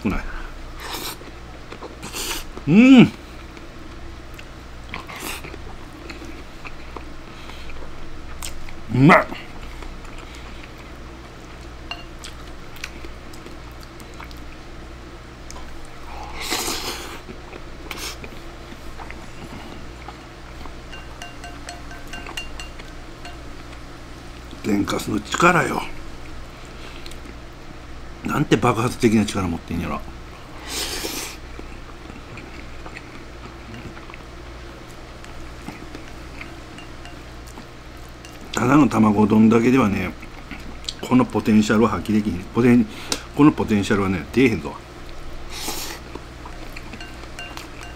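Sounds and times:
low steady hum: 0:00.0 - 0:47.9
chewing: 0:03.4 - 0:08.8, 0:09.5 - 0:14.6, 0:15.4 - 0:24.6, 0:31.0 - 0:38.6, 0:45.0 - 0:47.9
chopsticks clicking on ceramic bowl: 0:20.9 - 0:23.4, 0:46.7 - 0:47.9.

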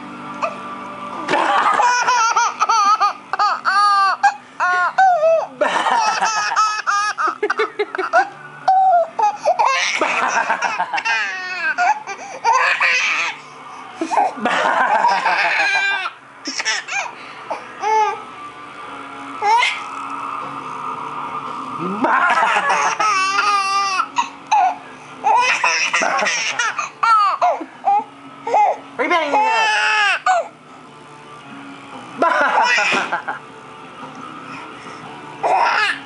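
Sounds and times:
baby laughing: 0:01.3 - 0:13.4, 0:14.0 - 0:18.2, 0:19.4 - 0:19.9, 0:22.1 - 0:30.5, 0:32.2 - 0:33.2, 0:35.4 - 0:36.0.

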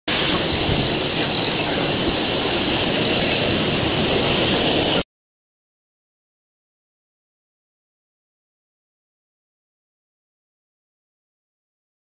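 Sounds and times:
machine hiss with high whine: 0:00.1 - 0:05.0.

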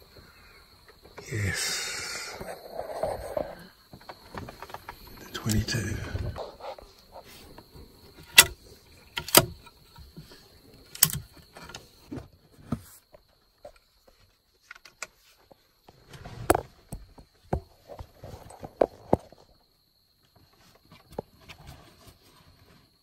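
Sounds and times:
insect drone: 0:00.0 - 0:23.0
metallic clicks and knocks: 0:08.2 - 0:09.7.

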